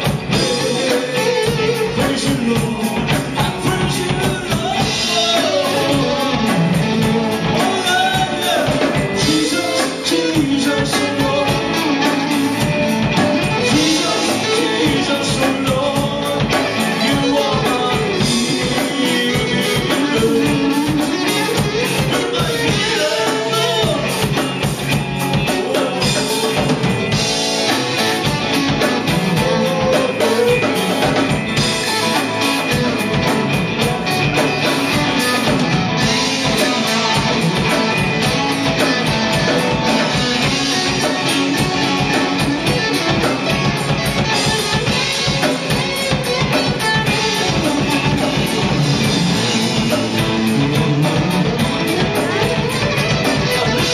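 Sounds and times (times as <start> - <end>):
drums keeping a steady beat: 0.0 - 53.9
electric guitars: 0.0 - 53.9
man singing into a microphone: 0.3 - 24.5, 25.3 - 27.4, 28.8 - 31.8.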